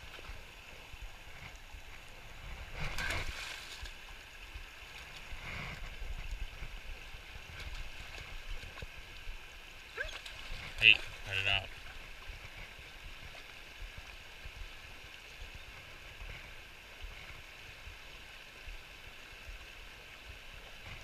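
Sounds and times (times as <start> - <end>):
river current rushing: 0.0 - 15.0.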